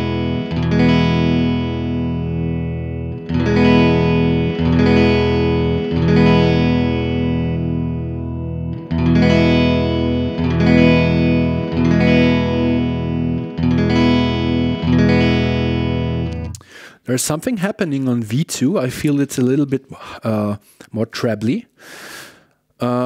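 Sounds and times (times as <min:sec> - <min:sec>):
electric guitar chords with reverb: 0:00.0 - 0:16.6.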